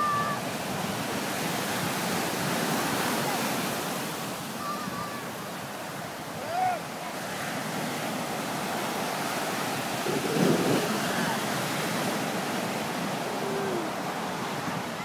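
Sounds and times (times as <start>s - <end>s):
surf breaking on a beach: 0.0s - 15.0s
faint voices of people: 13.2s - 15.0s.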